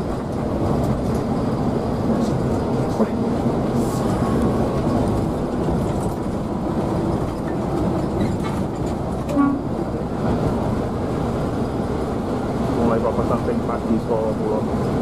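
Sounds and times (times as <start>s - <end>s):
coach engine and road noise: 0.0s - 15.0s
short horn toot: 9.3s - 9.7s.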